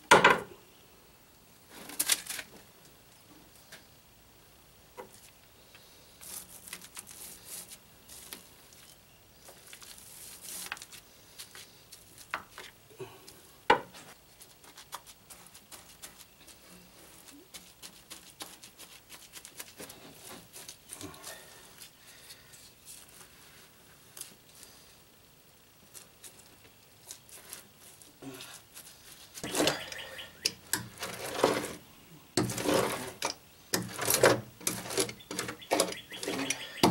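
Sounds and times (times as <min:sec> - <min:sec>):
brush scrubbing cloth: 0:14.4 - 0:21.9.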